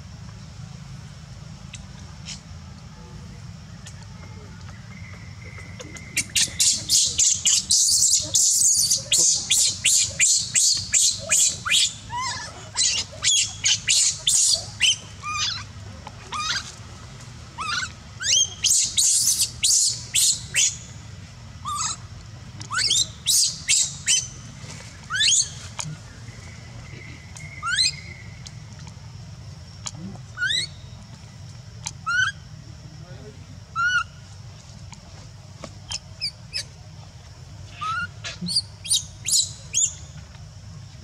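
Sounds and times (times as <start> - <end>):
baby monkey squealing: 6.2 - 15.7, 16.3 - 16.7, 17.6 - 20.8, 21.6 - 24.4, 25.1 - 25.6, 27.6 - 28.0, 30.4 - 30.8, 32.0 - 32.4, 33.8 - 34.1, 37.7 - 39.9.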